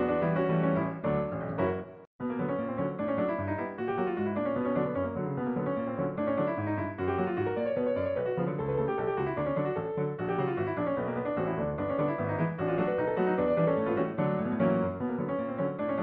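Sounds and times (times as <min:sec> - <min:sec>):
piano film score: 0:00.0 - 0:16.0.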